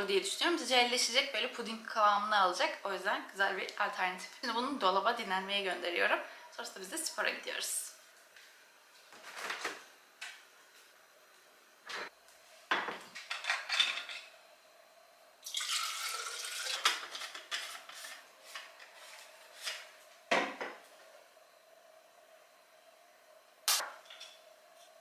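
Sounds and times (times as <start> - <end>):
kitchen clinks and knocks: 12.7 - 14.3
water pouring into plastic bottle: 15.5 - 16.8.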